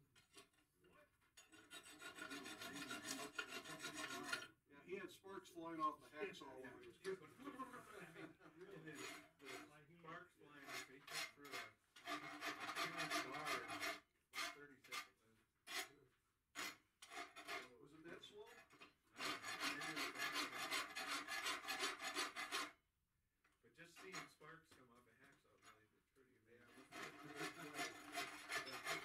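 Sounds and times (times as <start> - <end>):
rasp filing steel bar: 1.4 - 4.5, 8.7 - 9.7, 10.6 - 17.8, 18.6 - 22.8, 26.7 - 29.0.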